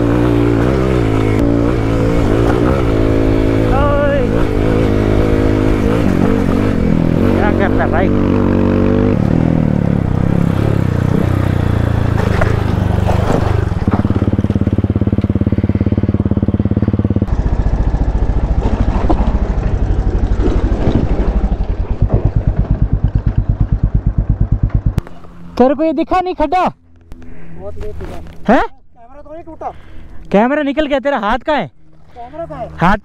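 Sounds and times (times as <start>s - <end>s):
dirt bike engine revving and idling: 0.0s - 25.8s.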